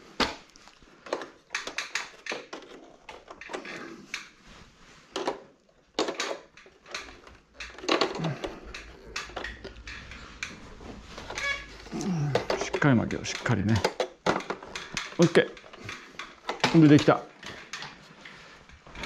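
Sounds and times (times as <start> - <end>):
metallic clicks and knocks: 1.0 - 4.3, 6.0 - 11.7, 12.3 - 18.0.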